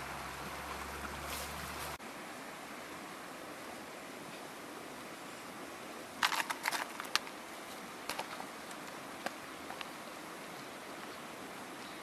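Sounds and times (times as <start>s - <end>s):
bamboo basket rattling: 6.2s - 7.4s, 8.1s - 8.9s.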